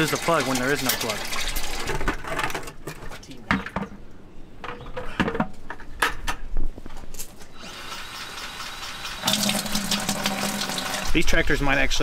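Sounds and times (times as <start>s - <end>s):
metal bucket clanking on gravel: 0.0s - 3.9s.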